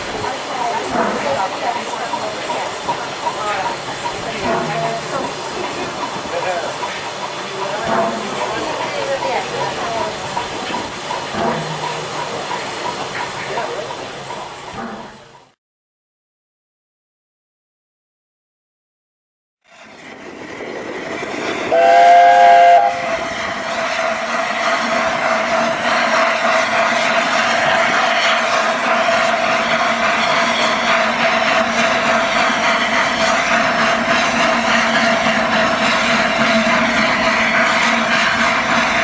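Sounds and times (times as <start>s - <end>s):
steam hissing: 0.0s - 15.5s, 20.8s - 39.0s
steam locomotive whistle blast: 21.7s - 23.3s.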